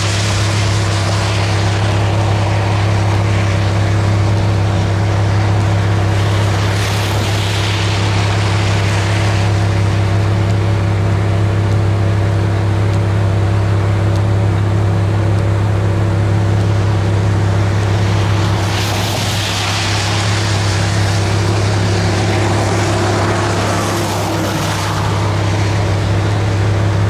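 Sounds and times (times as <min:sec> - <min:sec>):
vehicle engine idling: 0:07.6 - 0:18.8
wind rushing: 0:16.2 - 0:27.0.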